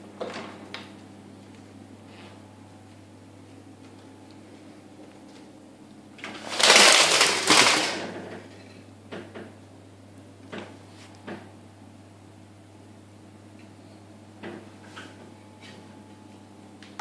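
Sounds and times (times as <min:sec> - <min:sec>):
wooden blind slats rattling: 0:06.2 - 0:08.3.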